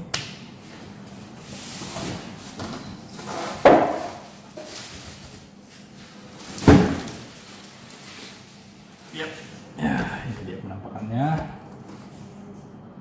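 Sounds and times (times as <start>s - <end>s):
packaging rustling and scraping: 1.5s - 9.5s.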